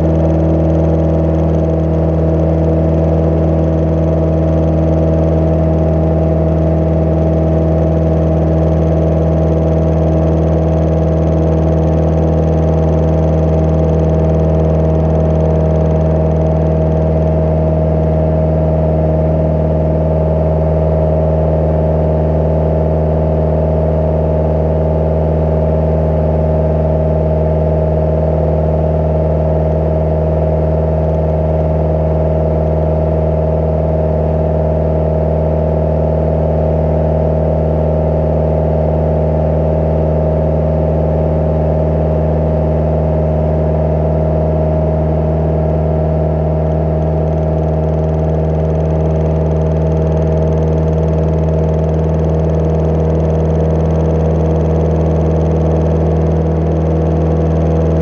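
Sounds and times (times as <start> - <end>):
aircraft engine and propeller droning: 44.6 - 58.0.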